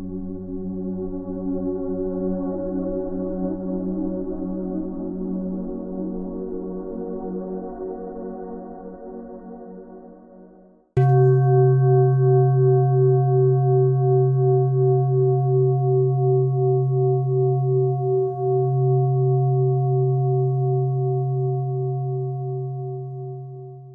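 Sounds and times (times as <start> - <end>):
singing bowl ringing: 11.0 - 23.9.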